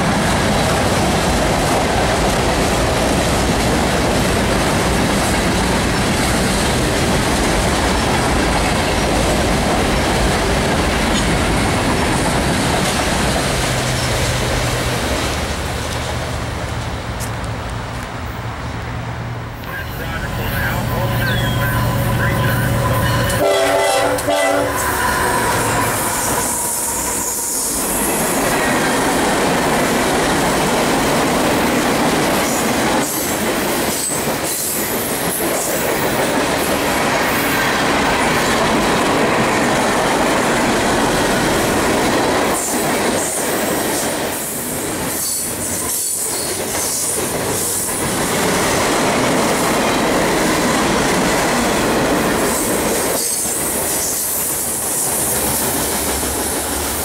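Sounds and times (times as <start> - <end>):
train wheels on rails: 0.0 - 57.0
train horn: 20.7 - 28.0.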